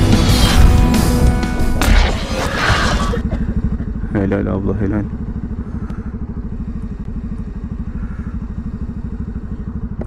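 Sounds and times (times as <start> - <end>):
motorcycle engine idling: 3.1 - 10.0.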